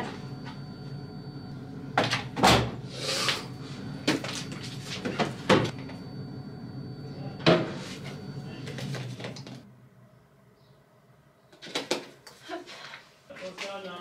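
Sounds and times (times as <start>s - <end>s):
washing machine door thump: 2.0s - 2.8s.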